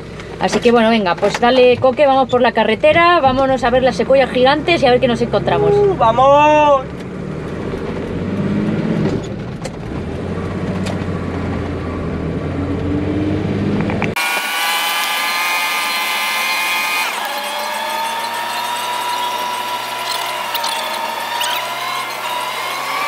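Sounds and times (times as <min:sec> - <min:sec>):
vehicle engine and road noise: 0:00.0 - 0:14.4, 0:16.4 - 0:23.0
high-pitched multi-tone whine: 0:14.2 - 0:23.0.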